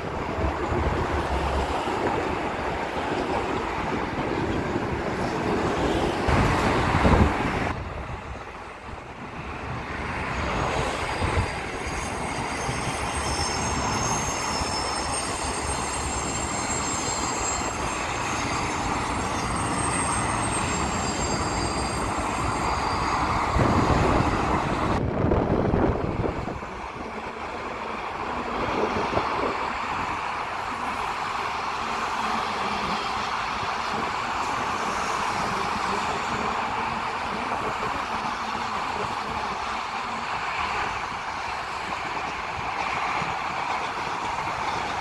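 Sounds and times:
train wheels rumbling on rail: 0.0s - 45.0s
high wheel squeal: 10.2s - 24.6s.

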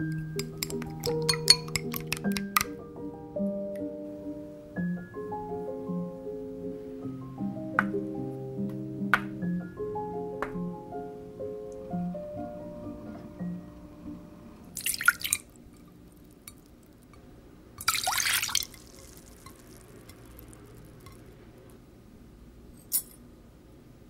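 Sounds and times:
liquid pouring into saucepan: 14.8s - 16.7s, 17.8s - 21.3s
salt pattering into liquid: 14.8s - 17.2s, 17.8s - 21.5s.

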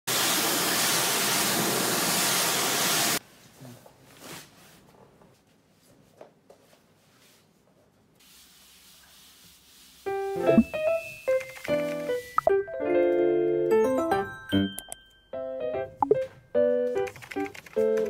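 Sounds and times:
vacuum cleaner running: 0.1s - 3.2s.

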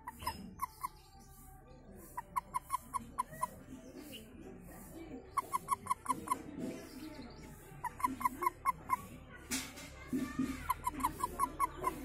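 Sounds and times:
toad chirping: 0.0s - 1.1s, 2.0s - 4.3s, 5.4s - 9.1s, 10.6s - 12.0s.

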